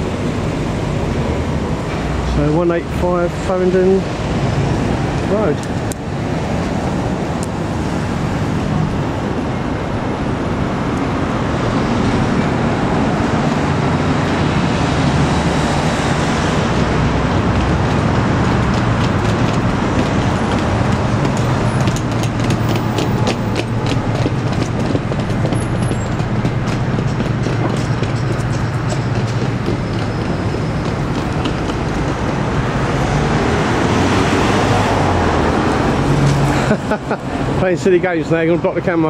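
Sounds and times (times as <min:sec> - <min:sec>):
traffic rumble: 0:00.0 - 0:39.0.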